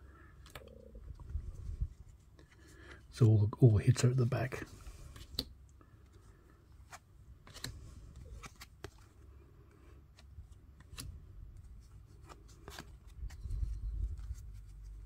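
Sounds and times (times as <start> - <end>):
trading cards snapping and sliding: 5.1 - 5.6, 6.9 - 9.0, 10.1 - 11.2.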